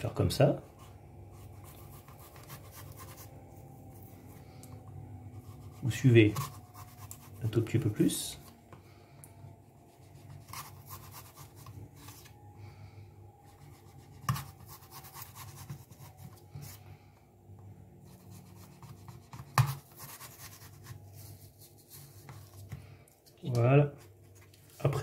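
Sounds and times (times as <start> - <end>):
knife cutting through apple: 5.4 - 7.4.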